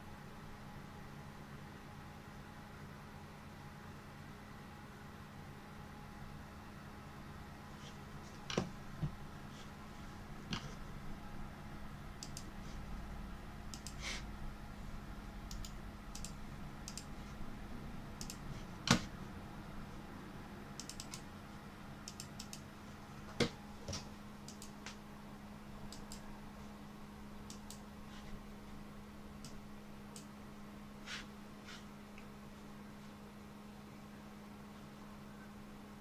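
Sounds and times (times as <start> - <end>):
steady low hum: 0.0 - 36.0
computer mouse clicking: 12.2 - 12.5, 13.7 - 14.0, 15.5 - 17.1, 18.2 - 19.0, 20.8 - 21.2, 22.0 - 22.7, 24.4 - 24.9, 25.9 - 26.3, 27.5 - 27.8, 29.4 - 30.3.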